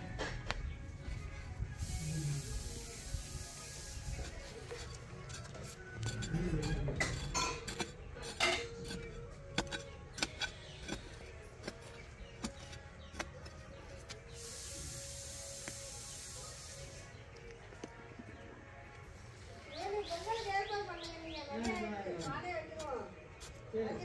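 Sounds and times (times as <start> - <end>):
steady hiss: 1.8 - 4.4, 14.3 - 17.1.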